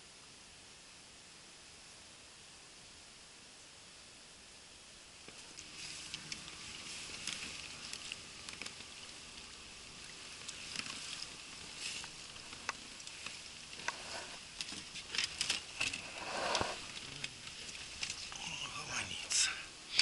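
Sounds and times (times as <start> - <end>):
fishing tackle clicks and rustles: 5.3 - 18.4.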